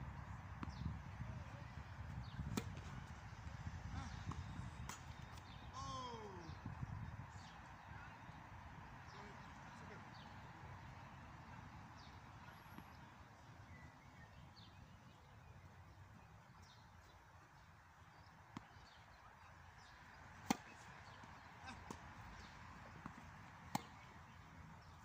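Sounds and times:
tennis ball impacts: 2.3s - 3.0s, 19.8s - 25.0s.

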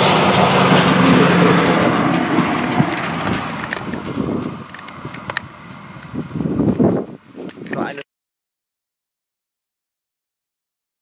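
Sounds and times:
railbus running along track: 0.0s - 7.6s.

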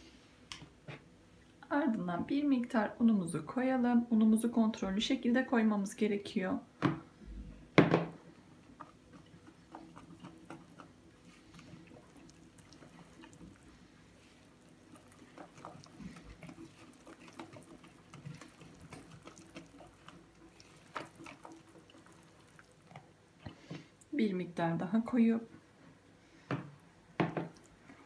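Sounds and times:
whisk stirring wet batter: 8.3s - 23.9s.

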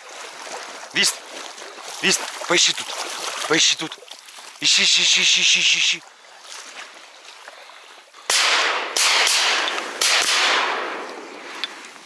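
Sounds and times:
shotgun shots echoing: 8.3s - 11.3s.

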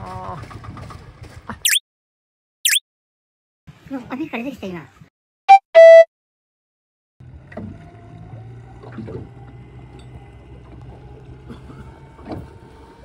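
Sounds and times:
boat motor humming: 7.2s - 13.0s.

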